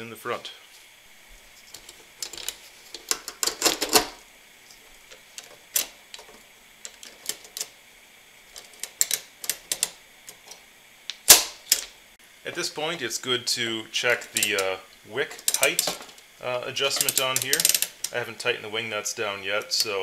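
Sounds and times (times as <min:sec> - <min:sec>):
metal ratchet clicks: 0:08.6 - 0:10.0, 0:14.3 - 0:14.7, 0:15.4 - 0:16.0, 0:16.9 - 0:18.2.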